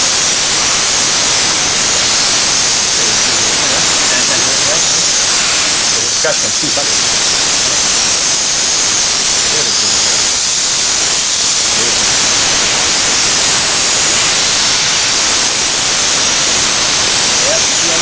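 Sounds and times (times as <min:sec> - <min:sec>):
steam cleaner hissing: 0:00.0 - 0:18.0.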